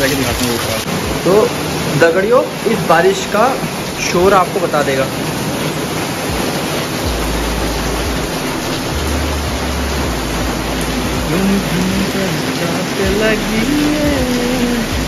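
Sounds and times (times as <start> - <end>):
heavy rain hissing: 0.0 - 15.0
low rumble: 7.0 - 12.3.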